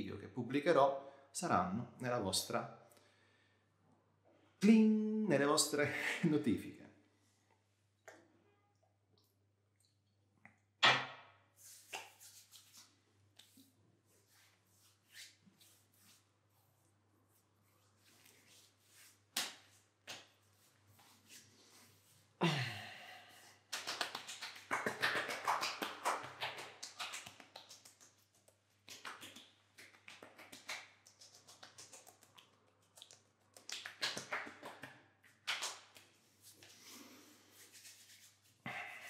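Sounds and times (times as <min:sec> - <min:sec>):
hands rubbing face: 0:11.6 - 0:22.3, 0:23.3 - 0:39.0
hand slapping face: 0:19.3 - 0:20.4, 0:23.7 - 0:28.2, 0:33.0 - 0:36.1.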